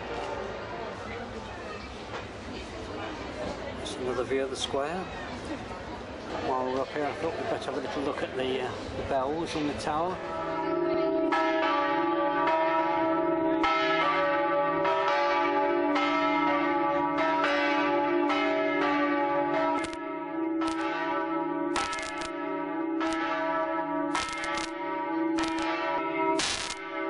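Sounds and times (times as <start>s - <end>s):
large church bells ringing: 6.4s - 27.0s.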